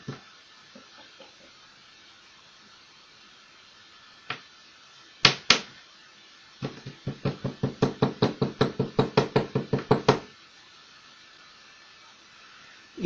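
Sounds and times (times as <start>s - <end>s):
paper tube tapping on wood: 6.6s - 10.2s.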